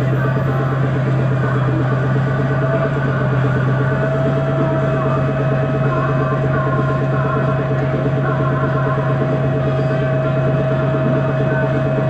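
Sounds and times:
bus engine running: 0.0s - 12.0s
steady high whine: 0.0s - 12.0s.

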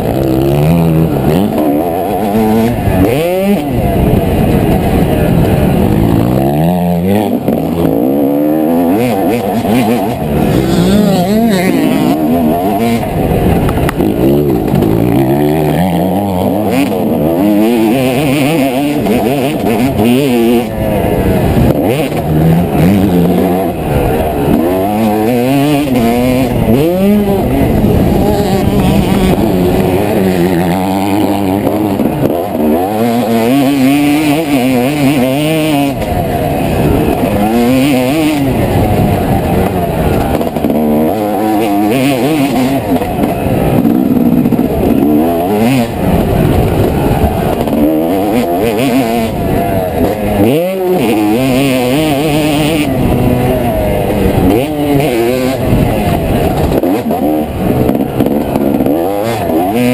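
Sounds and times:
motocross engine revving: 0.0s - 59.9s
wind on microphone: 25.5s - 32.6s, 42.2s - 59.4s.

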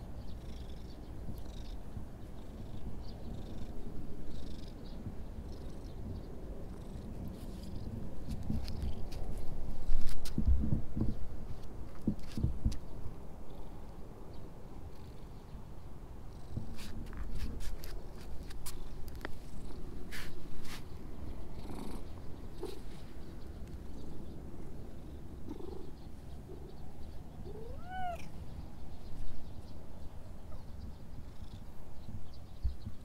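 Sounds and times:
cat purring: 21.5s - 28.4s
cat meowing: 27.5s - 28.3s.

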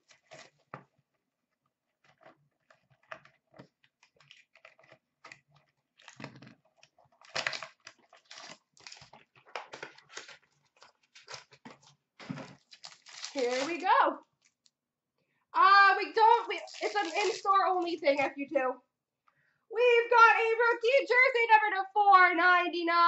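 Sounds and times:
wrapper rustling: 0.0s - 0.8s, 4.0s - 14.7s, 15.8s - 18.3s
cardboard box being opened: 7.2s - 13.8s.

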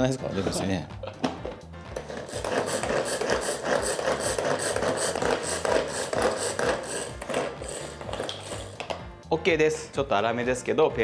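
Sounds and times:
blades grinding food: 2.0s - 9.0s
pull-cord food chopper pulled: 2.0s - 9.0s.

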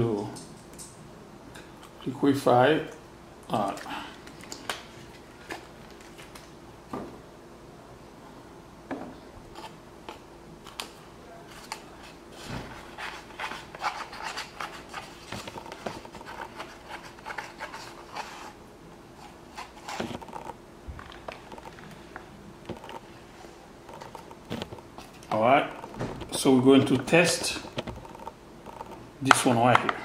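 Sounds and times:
faint steady hum: 0.0s - 30.0s
foam cup scratching and tapping: 12.8s - 18.5s.

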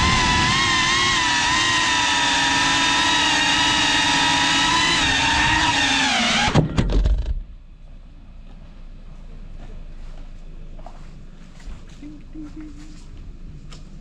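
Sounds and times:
drone motors whining: 0.0s - 7.5s.

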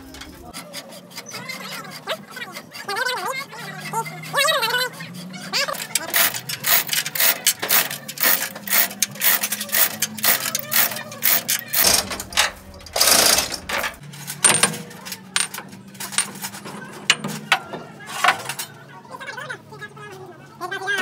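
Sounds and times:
hammering on metal: 5.8s - 14.8s
loud burst of noise: 6.1s - 14.0s.

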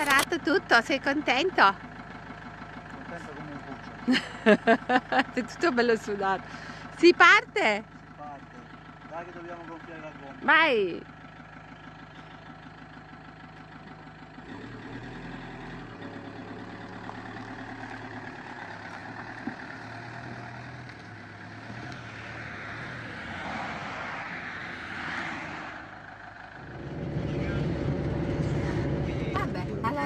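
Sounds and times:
motorhome engine running: 0.0s - 30.0s
rushing noise: 26.6s - 29.7s.

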